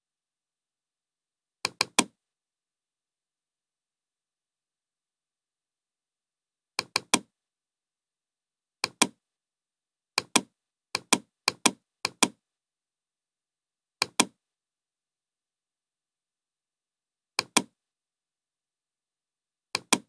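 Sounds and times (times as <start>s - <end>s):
computer mouse button clicks: 1.7s - 2.1s, 6.8s - 7.3s, 8.8s - 9.2s, 10.2s - 12.4s, 14.0s - 14.4s, 17.4s - 17.7s, 19.8s - 20.0s.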